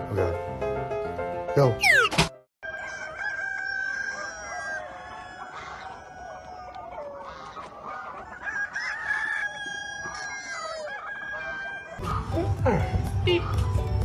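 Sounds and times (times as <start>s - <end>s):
roosters crowing: 2.6s - 12.5s
chickens clucking: 2.7s - 13.8s.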